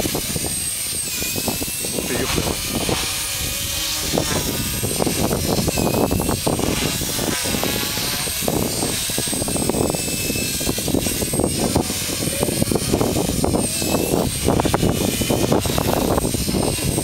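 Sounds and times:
model helicopter motor whine: 0:00.0 - 0:17.0.

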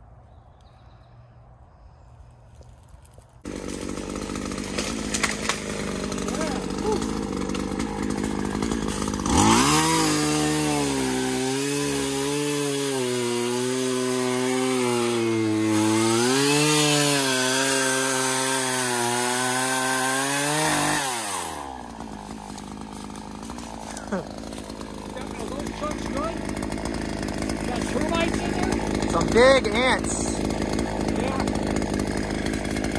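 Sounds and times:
chainsaw cutting log: 0:02.6 - 0:32.9.

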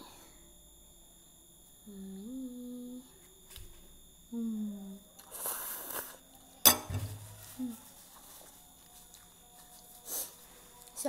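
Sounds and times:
woman humming: 0:01.8 - 0:03.2, 0:04.3 - 0:05.0, 0:07.5 - 0:07.9.

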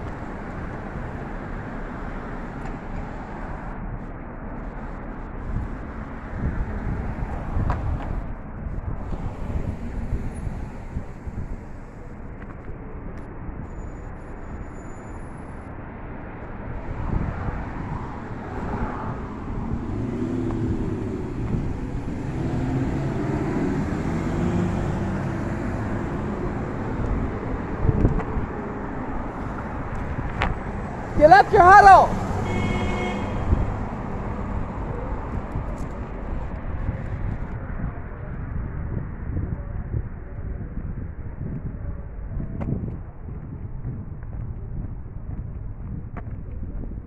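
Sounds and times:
cars passing on street: 0:00.0 - 0:47.0
vehicle engine approaching: 0:15.5 - 0:38.4.

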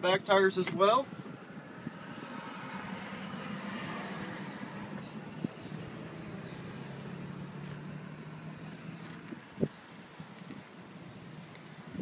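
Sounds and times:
low engine hum: 0:01.1 - 0:12.0
high bird chirps: 0:03.2 - 0:10.0.

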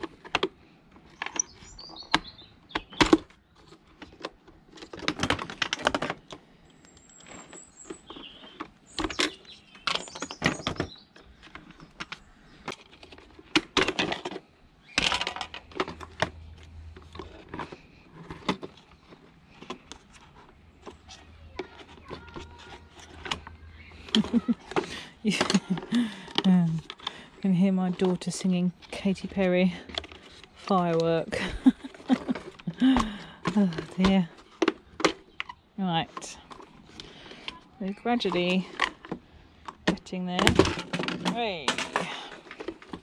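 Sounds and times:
plastic parts clicking and rattling: 0:00.0 - 0:43.0.

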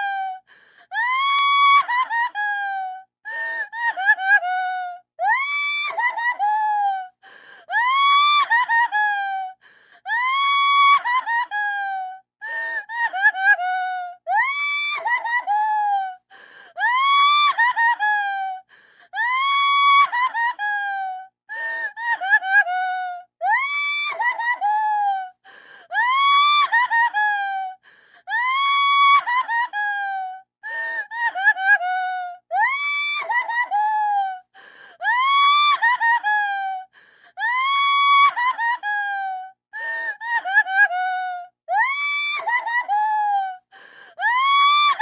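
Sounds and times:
woman crying: 0:00.0 - 0:07.1, 0:07.7 - 0:12.2, 0:12.8 - 0:16.2, 0:16.8 - 0:18.6, 0:19.2 - 0:43.6, 0:44.2 - 0:45.0
woman wailing and sobbing: 0:00.0 - 0:07.1, 0:07.7 - 0:12.2, 0:12.8 - 0:16.2, 0:16.8 - 0:45.0
gasping breaths: 0:00.4 - 0:01.0, 0:07.2 - 0:07.7, 0:09.6 - 0:10.1, 0:16.3 - 0:16.8, 0:18.7 - 0:19.2, 0:25.4 - 0:25.9, 0:27.8 - 0:28.3, 0:34.5 - 0:35.0, 0:36.8 - 0:37.4, 0:43.7 - 0:44.2.

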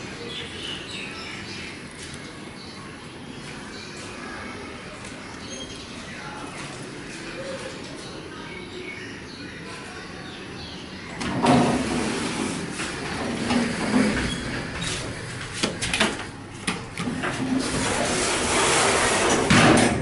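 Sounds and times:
elevator doors sliding: 0:11.1 - 0:20.0
sharp clicks and knocks: 0:15.5 - 0:17.4.

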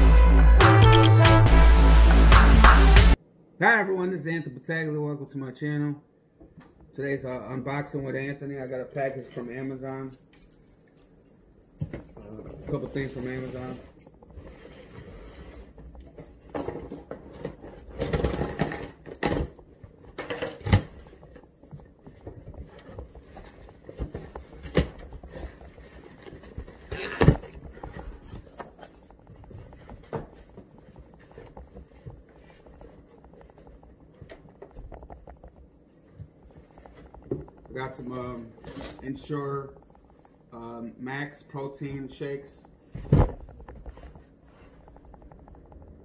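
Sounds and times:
package rustling and scraping: 0:20.9 - 0:39.1.

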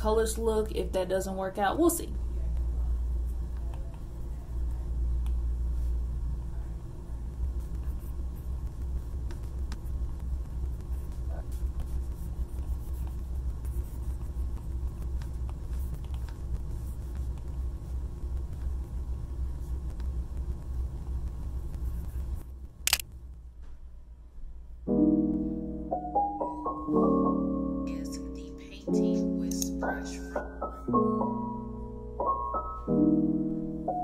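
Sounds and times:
steady low rumble: 0:00.0 - 0:24.9
stylus scratching and tapping on screen: 0:07.3 - 0:23.5
sharp click: 0:22.8 - 0:23.1
soft piano music: 0:24.8 - 0:34.0.

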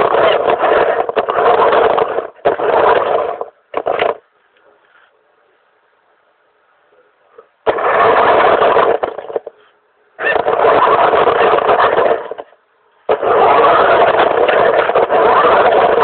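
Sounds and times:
model car motor driving: 0:13.1 - 0:16.0.

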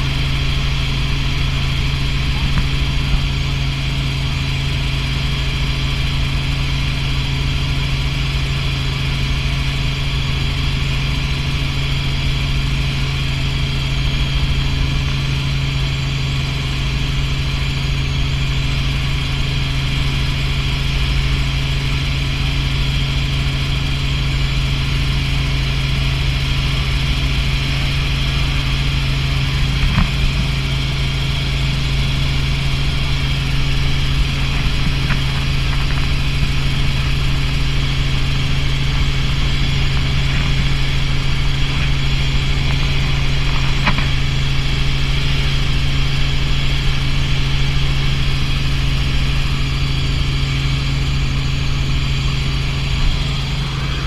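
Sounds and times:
helicopter engine and rotor drone: 0:00.0 - 0:54.0.

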